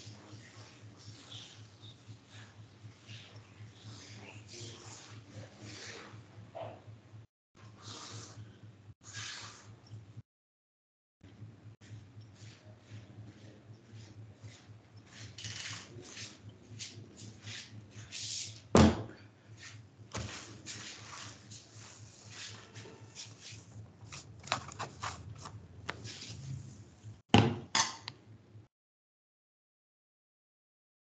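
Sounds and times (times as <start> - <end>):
low steady hum: 0.0 - 9.0, 11.2 - 27.2
loud thump: 18.8 - 19.1.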